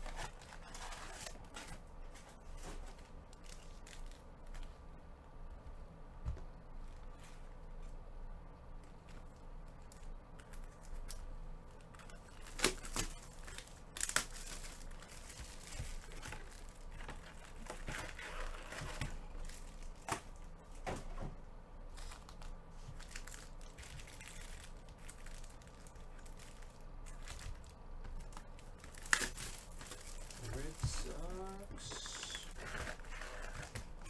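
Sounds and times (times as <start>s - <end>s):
foil packs crinkling: 12.0s - 20.3s, 21.9s - 34.0s.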